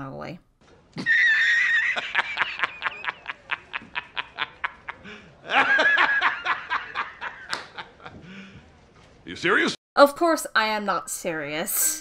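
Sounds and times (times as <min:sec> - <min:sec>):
man laughing hysterically: 0:01.0 - 0:08.3.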